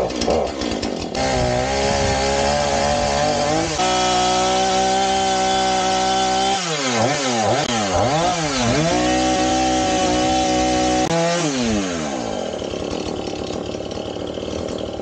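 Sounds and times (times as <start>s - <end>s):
chainsaw engine running: 0.0s - 15.0s.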